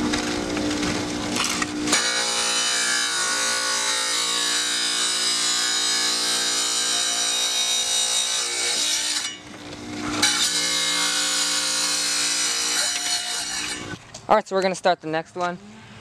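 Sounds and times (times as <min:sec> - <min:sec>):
tile saw motor whine: 0:00.0 - 0:14.0
saw grinding through glass: 0:01.4 - 0:09.4, 0:10.0 - 0:14.0.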